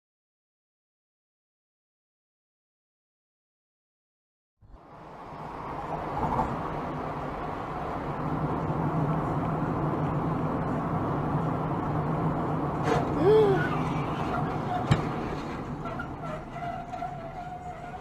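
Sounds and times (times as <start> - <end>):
car road and engine noise: 4.6 - 18.0.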